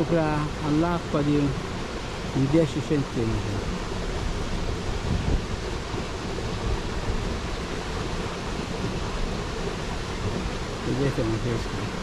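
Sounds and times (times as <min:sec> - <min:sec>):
river water rushing: 0:00.0 - 0:12.0
wind buffeting microphone: 0:03.1 - 0:12.0.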